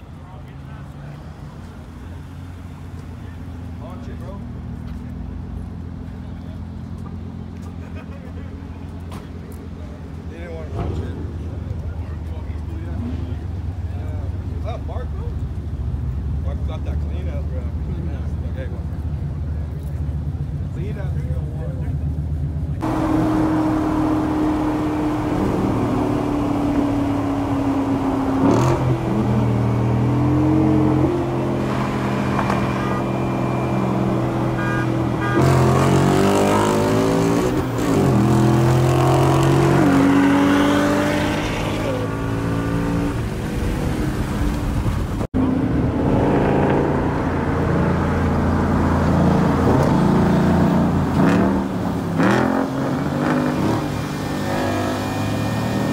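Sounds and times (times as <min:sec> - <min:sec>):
road noise: 0:00.0 - 0:55.9
car engine accelerating hard: 0:22.8 - 0:55.9.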